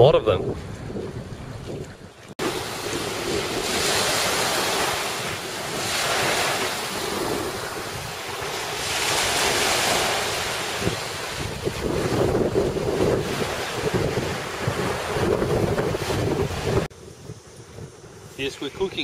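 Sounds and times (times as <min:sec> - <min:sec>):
small waves breaking on beach: 0:02.4 - 0:16.9.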